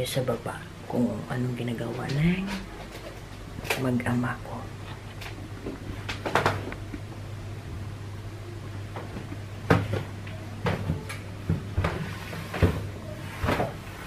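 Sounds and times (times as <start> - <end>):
steady low hum: 0.0 - 14.0
knocks and thumps: 9.0 - 13.8.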